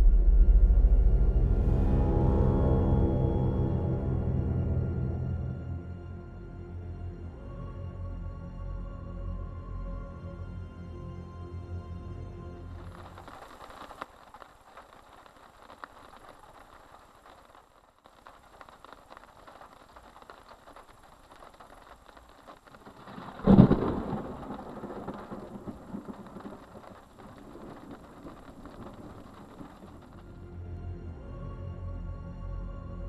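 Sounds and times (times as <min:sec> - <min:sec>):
steady rain hiss: 0:12.6 - 0:30.6
thunderclap rumbling: 0:12.8 - 0:30.4.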